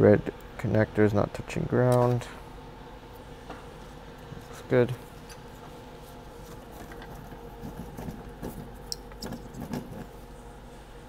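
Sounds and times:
faint hum: 0.0 - 11.0
soft handling knocks and rustles: 3.4 - 10.2.

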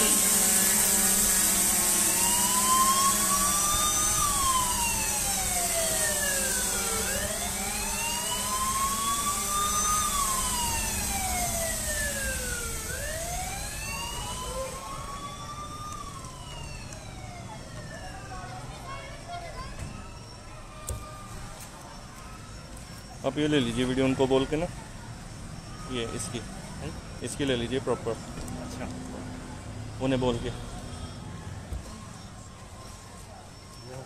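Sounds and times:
siren wailing: 0.0 - 21.5, 22.2 - 27.8.

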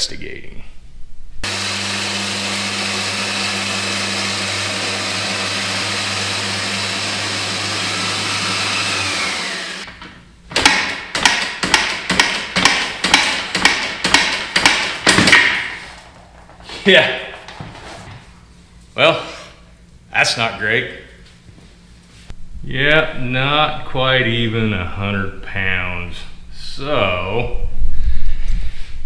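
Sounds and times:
mechanical hum with hiss: 15.6 - 29.0.

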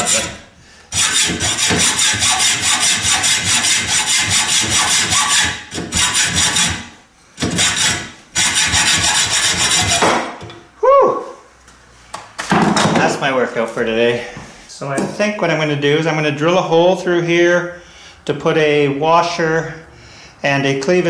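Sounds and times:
hacksaw cutting steel rod: 0.0 - 10.3.

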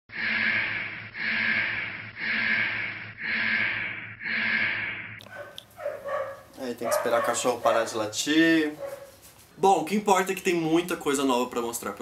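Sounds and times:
harsh buzzing alarm blasts: 0.1 - 5.3.

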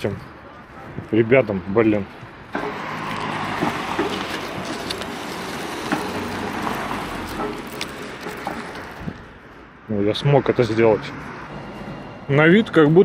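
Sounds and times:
footsteps ticking: 2.6 - 9.2
car tyres hissing on road: 2.6 - 9.3.

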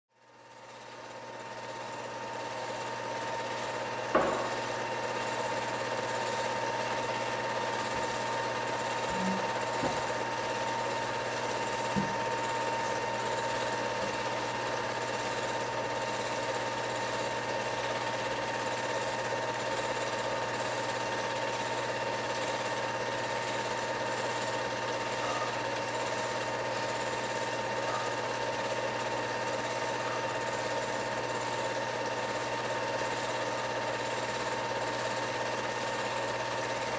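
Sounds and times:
film projector clatter: 0.4 - 36.9
constant hum: 7.2 - 13.4.

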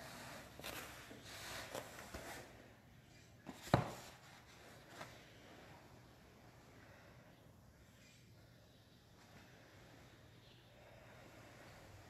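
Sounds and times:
rustling on exercise mat: 0.0 - 7.1.

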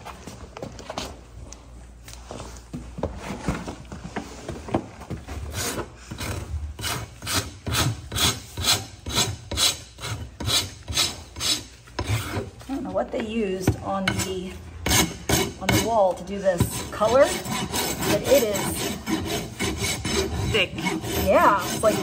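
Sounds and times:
hand rasp filing hoof: 5.5 - 12.6, 14.1 - 22.0.

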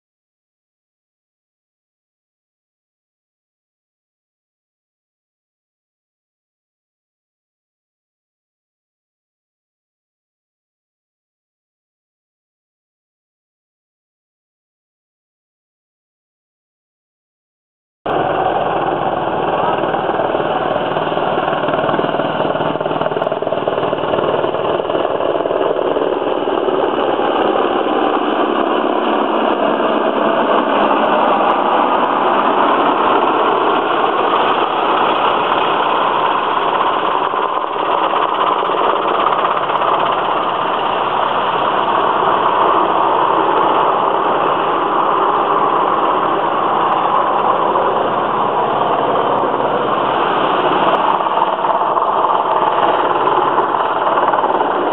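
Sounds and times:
helicopter flying overhead: 18.1 - 54.9.

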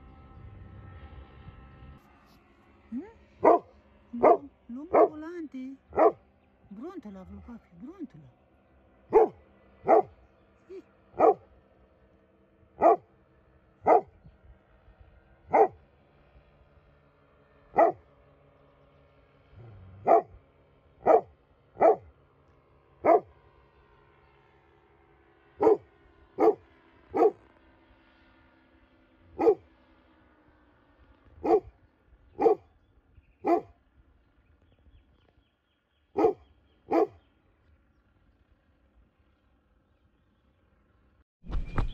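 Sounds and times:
dog barking: 3.4 - 5.2, 5.9 - 6.2, 9.1 - 10.1, 11.2 - 11.5, 12.8 - 13.1, 13.8 - 14.2, 15.5 - 15.8, 17.8 - 18.0, 19.6 - 20.4, 21.0 - 22.1, 23.0 - 23.3, 25.6 - 27.4, 29.4 - 29.6, 31.4 - 31.7, 32.4 - 32.7, 33.4 - 33.7, 36.2 - 37.2.

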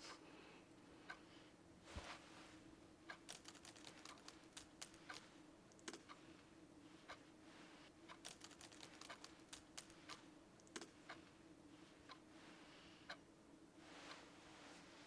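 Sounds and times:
low steady hum: 0.0 - 15.0
laptop keyboard keystrokes: 3.1 - 6.1, 8.1 - 11.0.

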